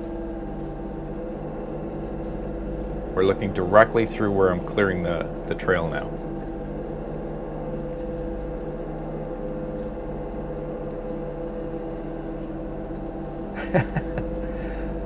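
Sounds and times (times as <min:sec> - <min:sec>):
excavator diesel engine running: 0:00.0 - 0:15.0.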